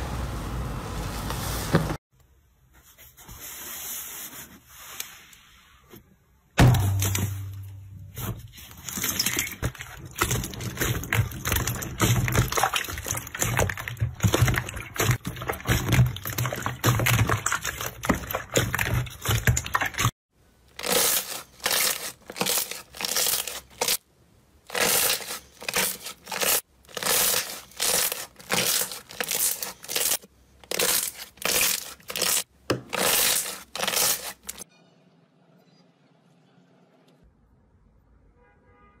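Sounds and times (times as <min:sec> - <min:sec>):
slime squelching: 0:07.0 - 0:24.0, 0:24.7 - 0:34.6
slime crackling: 0:24.7 - 0:34.6.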